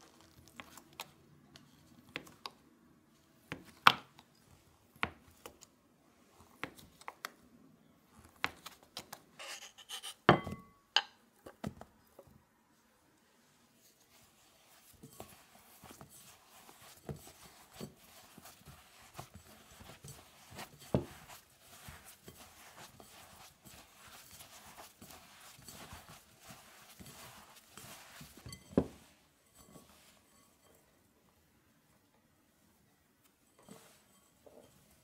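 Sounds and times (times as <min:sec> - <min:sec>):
fingers rubbing butter into flour: 0:14.1 - 0:29.0.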